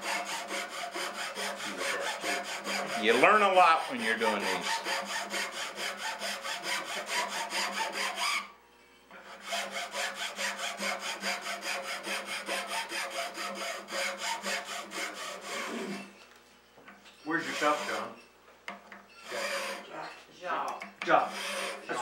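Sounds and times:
file rasping on wood: 0:00.0 - 0:08.5, 0:09.2 - 0:16.1, 0:17.3 - 0:18.2, 0:19.2 - 0:19.9, 0:21.0 - 0:22.0.

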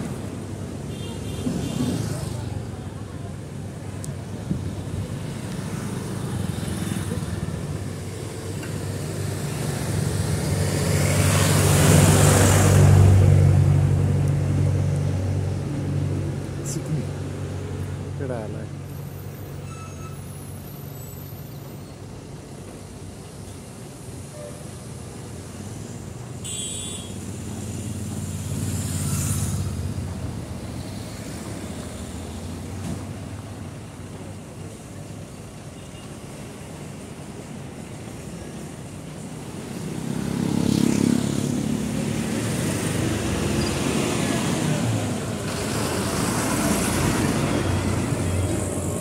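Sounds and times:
road traffic hum: 0:00.0 - 0:49.0
vehicle passing close by: 0:09.3 - 0:17.0, 0:39.7 - 0:49.0
bus driving past: 0:36.5 - 0:49.0.

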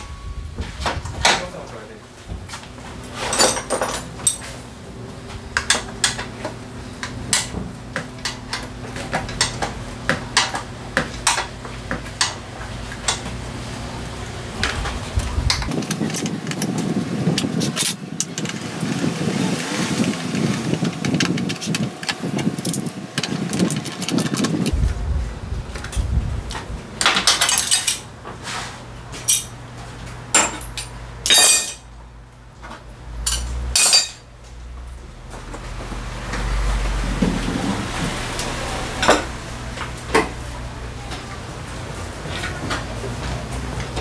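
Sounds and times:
steady low hum: 0:00.0 - 0:35.8
rough noisy background: 0:00.0 - 0:44.0
metallic tool clicks and clinks: 0:33.3 - 0:34.2.

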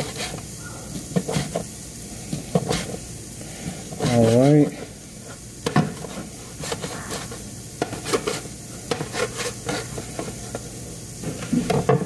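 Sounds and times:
peppers sizzling in a pan: 0:00.0 - 0:12.0
knife slicing on cutting board: 0:02.6 - 0:02.9, 0:06.6 - 0:09.9.

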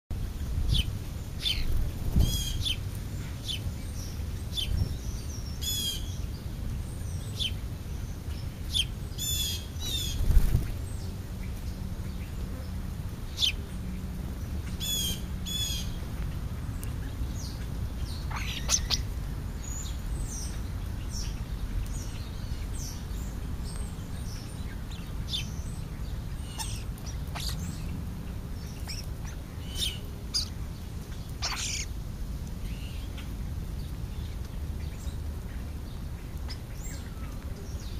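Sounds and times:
starlings chirping and whistling: 0:17.4 - 0:21.4, 0:24.3 - 0:27.9, 0:28.6 - 0:31.9.

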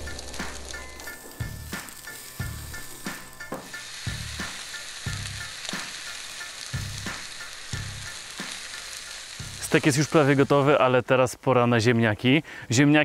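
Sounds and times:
background music with low beat: 0:00.0 - 0:06.0
steak sizzling on grill: 0:00.0 - 0:11.3.

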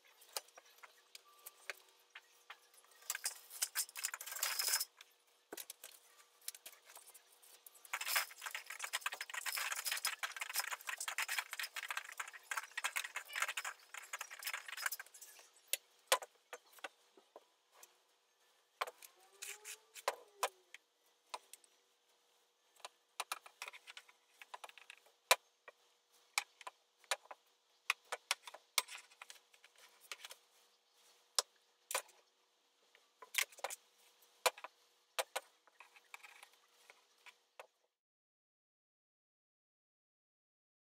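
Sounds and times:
curtain rod hardware rattling: 0:03.0 - 0:04.9, 0:07.8 - 0:15.3.

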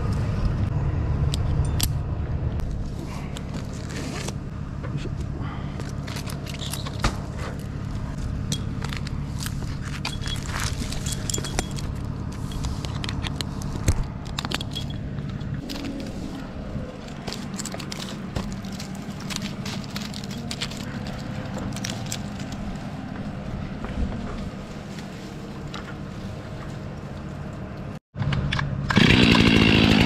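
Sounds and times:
low engine hum: 0:00.0 - 0:30.0
gear scraping tree bark: 0:02.8 - 0:27.7, 0:28.9 - 0:30.0
climbing hardware jangling and clicking: 0:05.8 - 0:07.7, 0:09.8 - 0:13.6, 0:14.2 - 0:15.5.

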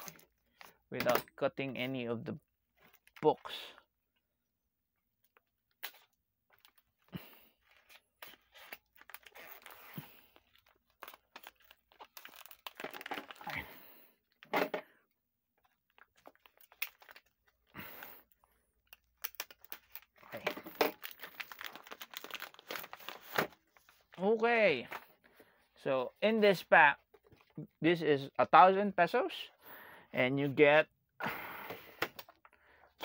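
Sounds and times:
shrink-wrap crinkling and tearing: 0:07.6 - 0:13.6, 0:15.9 - 0:17.8, 0:18.8 - 0:24.2.

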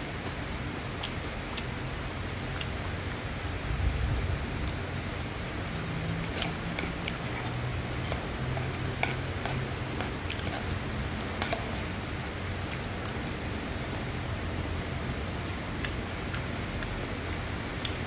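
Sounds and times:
metal spoon scraping frying pan: 0:06.2 - 0:10.8, 0:11.4 - 0:11.8.

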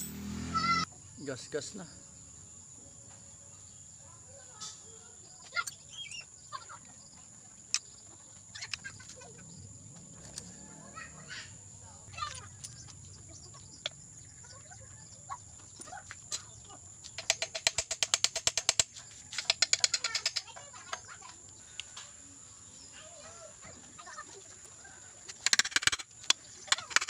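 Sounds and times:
tool clicks and knocks: 0:17.1 - 0:20.5, 0:25.3 - 0:27.0
ratchet wrench clicking: 0:17.2 - 0:20.5, 0:25.3 - 0:27.0.

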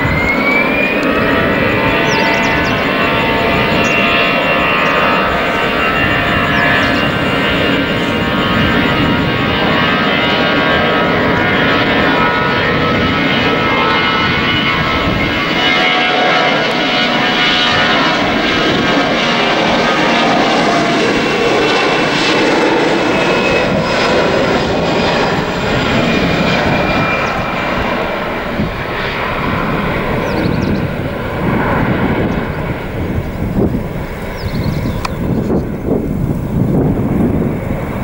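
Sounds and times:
jet engines roaring: 0:00.0 - 0:38.0.

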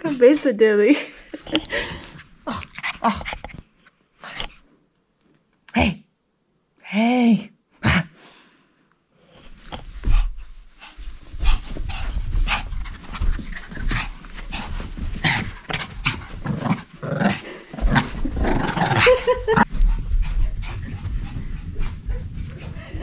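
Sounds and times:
dog panting: 0:10.0 - 0:18.4, 0:19.1 - 0:23.0.

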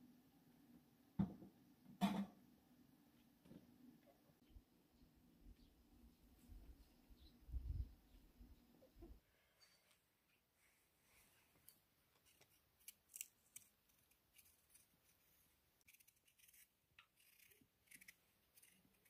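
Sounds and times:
knife peeling potato: 0:12.1 - 0:19.0.

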